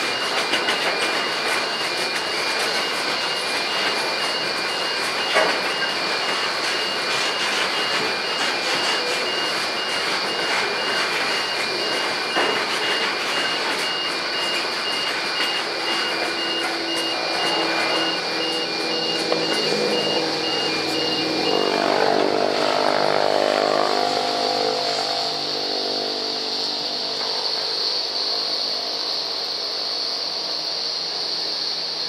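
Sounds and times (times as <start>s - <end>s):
sharp knocks of train wagons: 0.0s - 21.4s
pulsing high-pitched beep: 0.0s - 28.1s
freight train wheels rumbling on rail: 0.0s - 32.0s.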